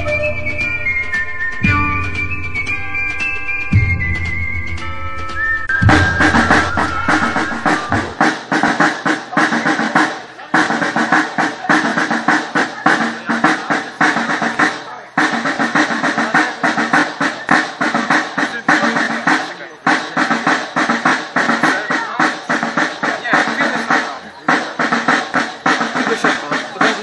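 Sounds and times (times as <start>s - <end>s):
sustained intro music: 0.0s - 8.4s
snare drums rolling: 0.0s - 27.0s.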